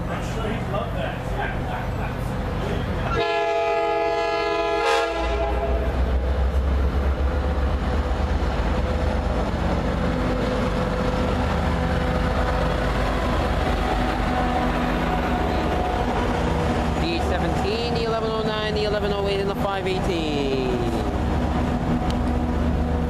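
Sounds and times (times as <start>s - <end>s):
train coaches rolling: 0.0s - 23.0s
train engine rumble: 0.0s - 23.0s
train horn blast: 3.0s - 6.0s.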